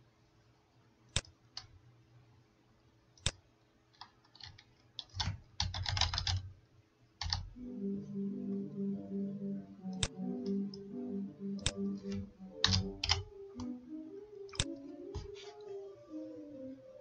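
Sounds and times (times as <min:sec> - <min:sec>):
computer keyboard typing: 0:04.0 - 0:06.5, 0:07.2 - 0:07.6, 0:11.6 - 0:13.7
mouse clicks: 0:11.6 - 0:13.2, 0:14.5 - 0:14.8.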